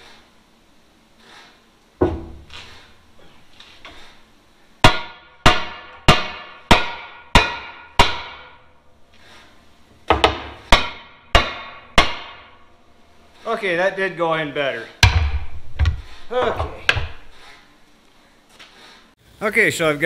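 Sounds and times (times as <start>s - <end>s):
hammer striking metal: 4.8s - 8.7s, 10.1s - 12.6s.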